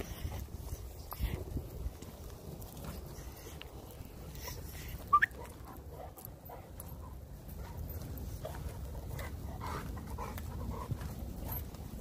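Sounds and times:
footsteps on trail: 0.0 - 12.0
dog whining: 4.4 - 5.4.

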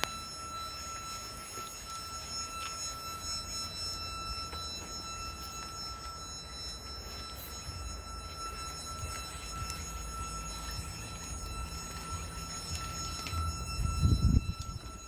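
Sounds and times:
high-pitched whine: 0.0 - 15.0
engine low drone: 7.0 - 15.0.

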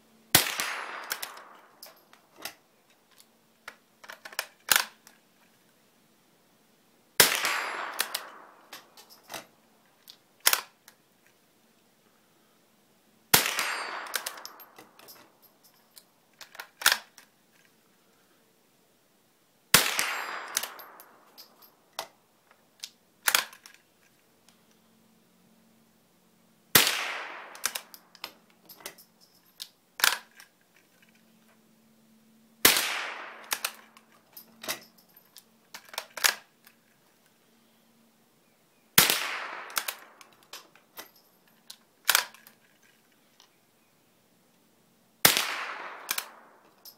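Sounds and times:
rifle shots: 0.3 - 1.7, 7.2 - 8.7, 13.3 - 14.7, 19.7 - 21.2, 26.8 - 27.9, 32.6 - 33.9, 39.0 - 40.2, 45.2 - 46.6
rifle bolt clicks: 7.5 - 9.4, 27.4 - 29.0, 33.4 - 34.9, 45.4 - 46.9.

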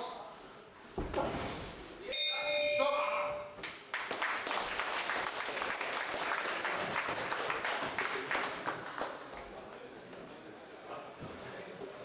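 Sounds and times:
audience applauding: 3.9 - 9.3.

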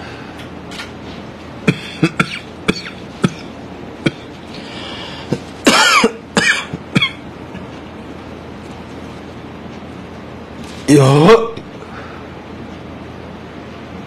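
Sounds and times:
man coughing: 1.6 - 4.3, 5.3 - 7.3.

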